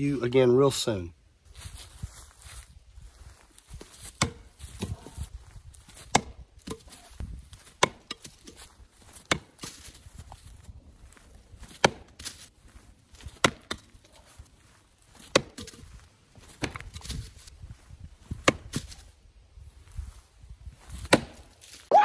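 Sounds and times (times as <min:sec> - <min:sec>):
axe chopping wood: 0:03.8 - 0:05.2, 0:05.9 - 0:10.0, 0:11.7 - 0:12.4, 0:13.2 - 0:14.1, 0:15.2 - 0:15.8, 0:16.6 - 0:17.2, 0:18.4 - 0:18.9, 0:21.0 - 0:21.5.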